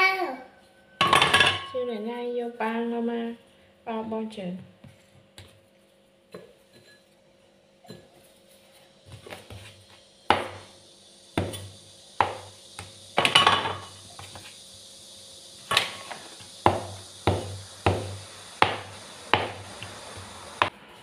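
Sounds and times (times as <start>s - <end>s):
cleaver knocking on cutting board: 16.6s - 19.6s.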